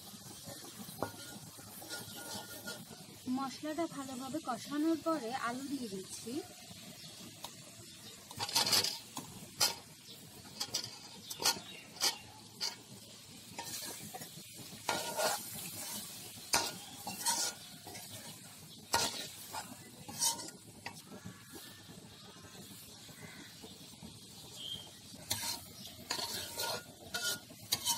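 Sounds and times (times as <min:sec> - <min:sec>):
low sizzle: 0:00.0 - 0:27.9
ladle scraping and clinking on pan: 0:00.4 - 0:03.2, 0:08.3 - 0:21.0, 0:25.2 - 0:27.9
potato wedges tumbling into pan: 0:00.4 - 0:03.2, 0:08.2 - 0:21.3, 0:24.5 - 0:27.9.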